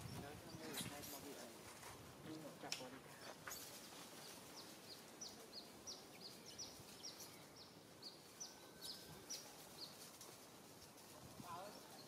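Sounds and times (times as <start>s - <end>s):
bird chirping: 3.1s - 10.1s.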